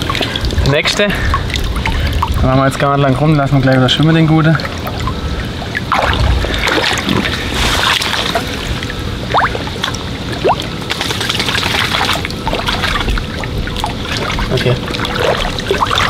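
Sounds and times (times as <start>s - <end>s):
water splashing and sloshing: 0.0s - 16.0s
small sharp splashes: 4.6s - 16.0s.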